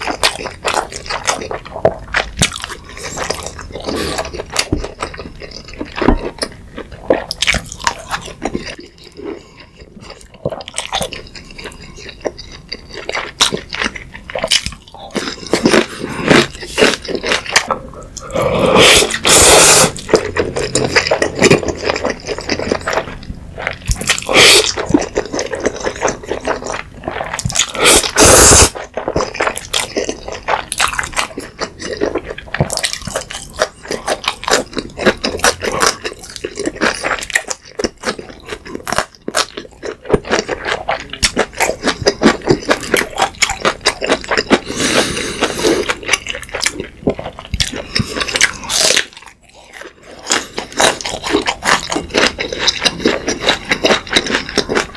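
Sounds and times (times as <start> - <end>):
loud noodle slurping: 18.2 - 29.2, 44.4 - 46.2
wet chewing with smacking clicks: 28.7 - 44.6, 45.4 - 54.9.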